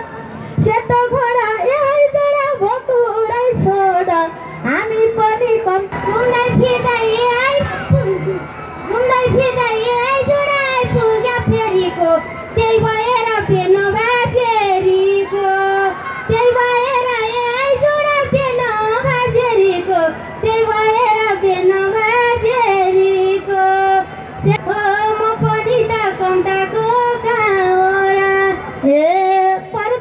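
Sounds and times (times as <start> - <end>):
woman singing folk song: 8.9 - 30.0.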